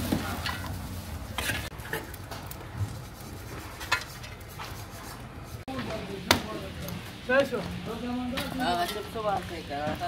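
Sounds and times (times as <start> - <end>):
metal pots and utensils clinking: 8.3 - 9.4.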